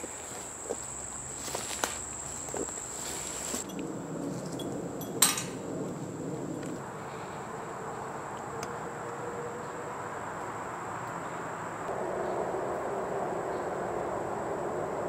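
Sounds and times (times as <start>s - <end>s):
footsteps crunching on leaf litter: 0.0s - 3.6s
insects singing: 0.0s - 3.8s.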